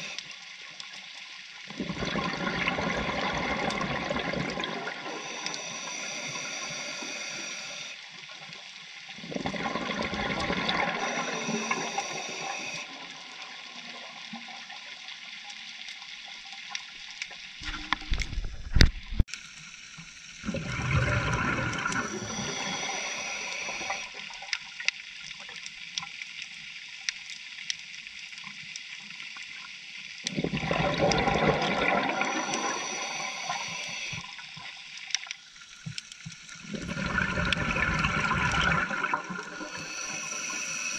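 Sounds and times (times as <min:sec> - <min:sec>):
diver breathing through regulator: 0:00.0 - 0:00.2, 0:04.8 - 0:08.0, 0:10.3 - 0:12.9, 0:20.9 - 0:24.2, 0:31.4 - 0:34.3, 0:38.2 - 0:40.9
bubbling rush of exhale: 0:20.5 - 0:24.1, 0:30.4 - 0:34.2, 0:36.7 - 0:40.9.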